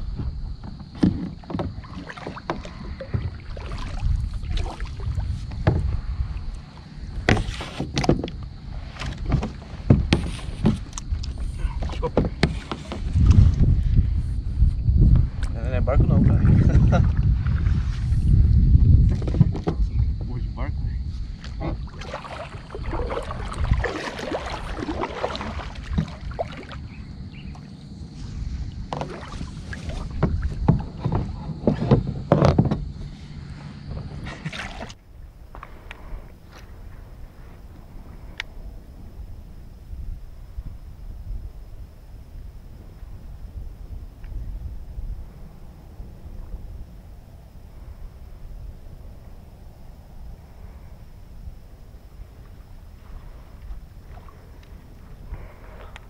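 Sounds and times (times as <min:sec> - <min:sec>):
wind rumble on microphone: 0:00.0 - 0:56.0
paddle splashes: 0:00.7 - 0:13.7, 0:21.3 - 0:38.2, 0:52.2 - 0:56.0
water splashing and dripping: 0:01.3 - 0:05.9, 0:21.4 - 0:26.9, 0:28.9 - 0:31.2, 0:34.3 - 0:35.0
paddle knocking on plastic hulls: 0:05.5 - 0:06.0, 0:07.2 - 0:13.5, 0:19.0 - 0:20.2, 0:21.4 - 0:26.7, 0:28.9 - 0:33.1.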